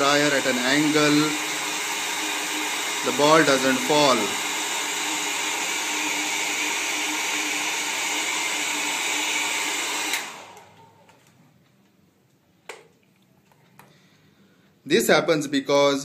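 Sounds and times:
hair dryer blowing: 0:00.0 - 0:11.0.

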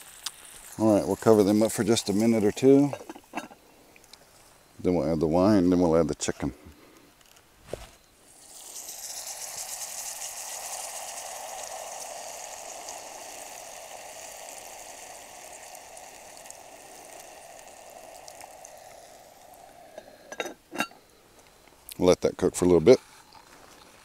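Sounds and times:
wine sizzling in a hot pot: 0:00.0 - 0:03.7, 0:08.2 - 0:22.1.

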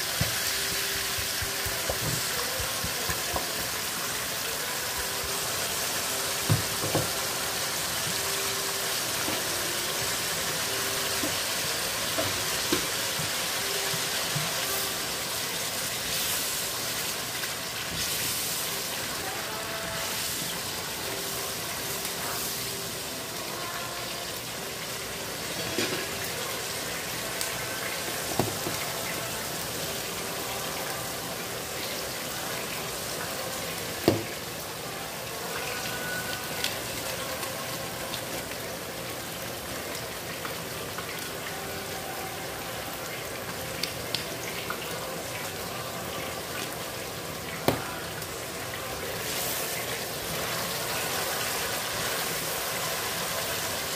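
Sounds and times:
sauce sizzling in a wok: 0:00.0 - 0:53.9.

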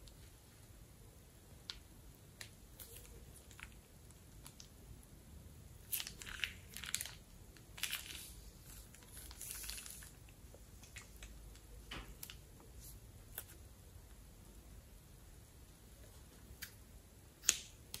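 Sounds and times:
balloon and plastic bag crinkling: 0:02.4 - 0:04.7, 0:05.8 - 0:11.4.

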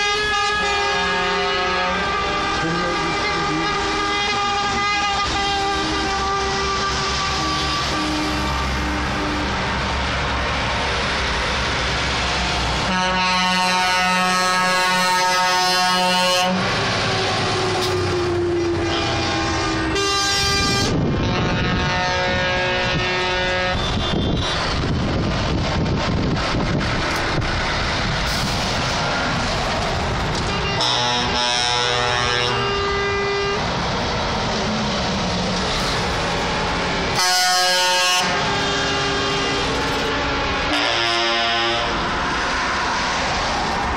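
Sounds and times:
truck air horn blast: 0:00.0 - 0:09.7, 0:12.8 - 0:24.8, 0:30.4 - 0:33.8, 0:37.1 - 0:43.0
heavy trucks driving past: 0:00.0 - 0:43.9.

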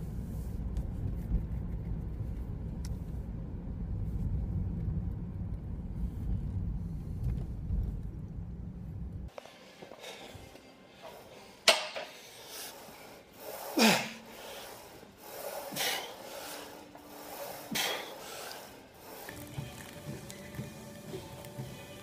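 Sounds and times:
man breathing with effort: 0:09.4 - 0:19.4.

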